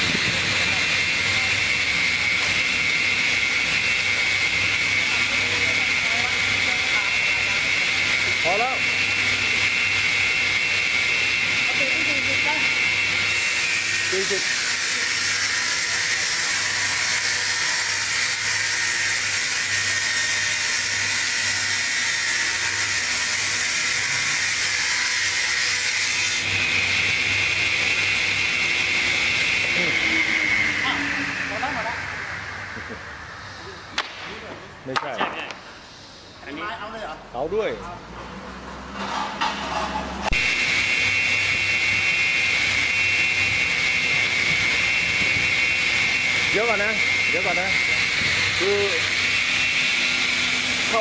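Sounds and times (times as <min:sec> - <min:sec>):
circular saw blades whining: 0:00.0 - 0:34.9, 0:38.4 - 0:51.0.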